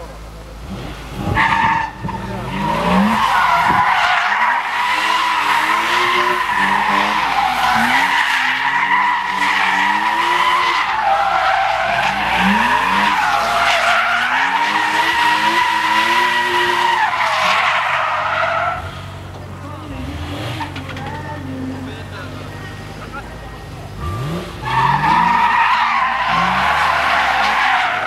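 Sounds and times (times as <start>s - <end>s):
car engine revving: 0.0s - 28.0s
tyres squealing: 1.4s - 19.4s, 24.0s - 28.0s.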